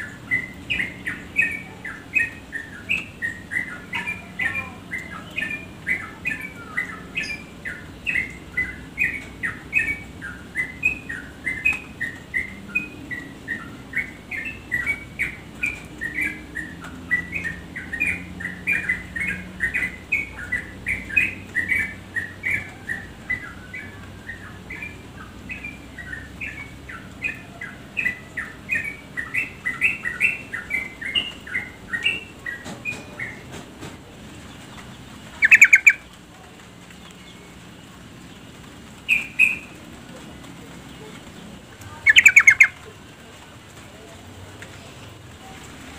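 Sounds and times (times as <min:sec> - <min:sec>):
bulbul chattering chirps: 0:34.6 - 0:36.1, 0:40.8 - 0:42.8.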